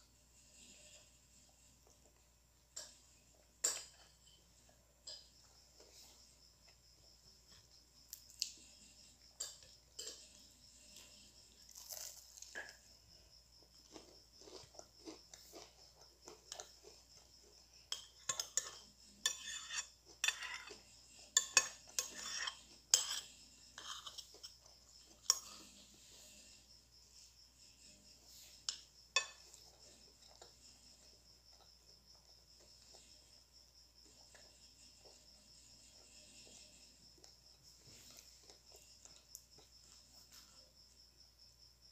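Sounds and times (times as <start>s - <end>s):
crickets chirping: 0.0s - 41.9s
spoon scraping and clinking on plate: 9.4s - 12.2s, 17.8s - 26.4s, 28.3s - 31.0s
chewing crunchy food: 9.4s - 22.8s.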